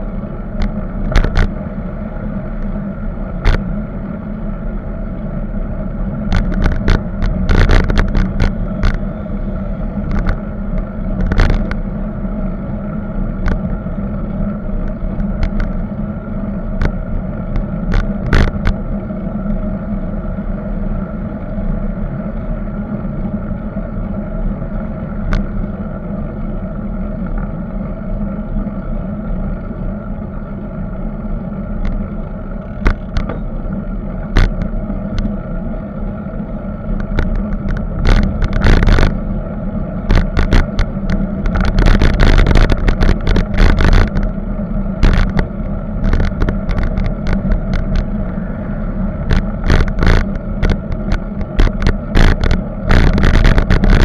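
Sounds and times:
wind and road rumble: 0.0 - 54.0
sharp knocks and clicks: 0.6 - 1.5, 6.3 - 9.0, 10.1 - 11.8, 14.8 - 15.8, 32.6 - 33.5, 34.3 - 35.3, 37.0 - 39.2, 40.1 - 44.3, 45.0 - 48.1, 49.3 - 54.0.

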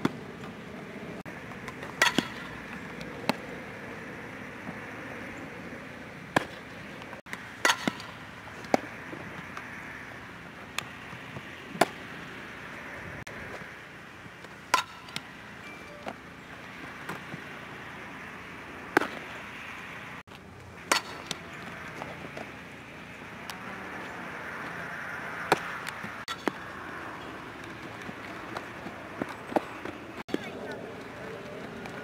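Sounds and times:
steady background hiss: 0.0 - 29.0
bat hitting softball: 1.7 - 3.4, 7.3 - 8.9, 14.6 - 15.4, 18.9 - 19.3, 20.8 - 21.5, 25.5 - 26.6.

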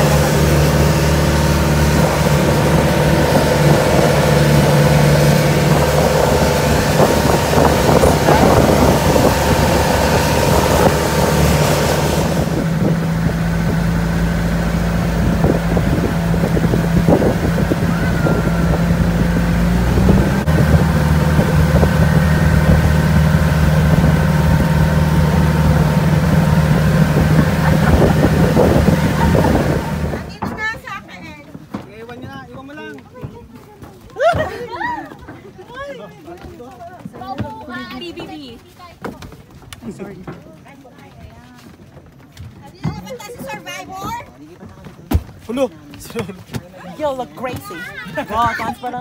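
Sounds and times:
water rushing: 0.0 - 30.4
wind on microphone: 0.0 - 30.6
boat engine droning: 0.0 - 31.0.

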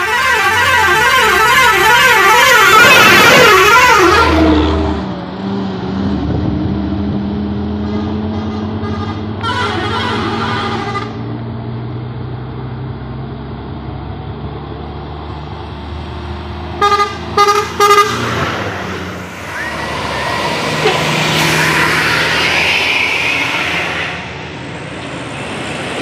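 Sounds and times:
vehicle horn blasts: 0.0 - 4.4, 7.8 - 11.2, 16.8 - 18.2
diesel engines droning uphill: 0.0 - 26.0.

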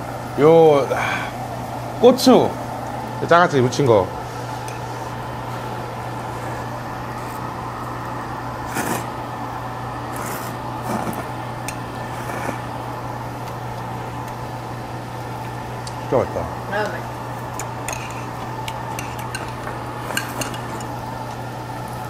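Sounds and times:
low mechanical hum: 0.0 - 22.0
person slurping noodles: 8.6 - 9.1, 10.1 - 11.3.

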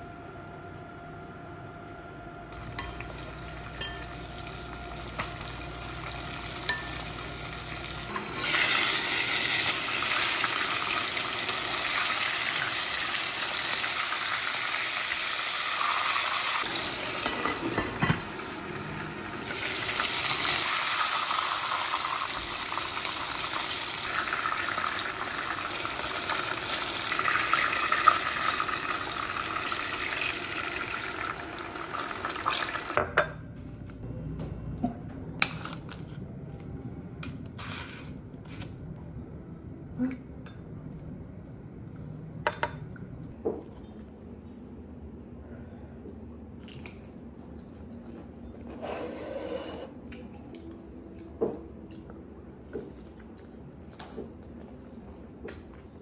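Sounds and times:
chicken sizzling in hot oil: 2.6 - 33.0.

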